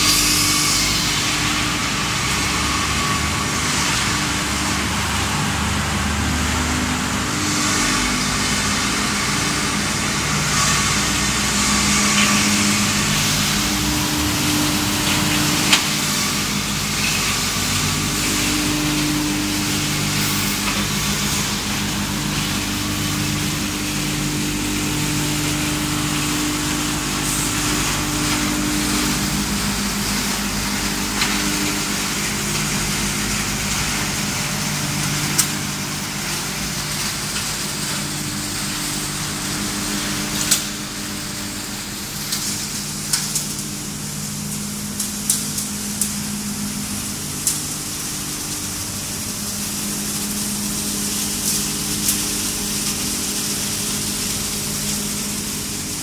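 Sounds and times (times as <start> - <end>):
machinery hum and hiss: 0.0 - 56.0.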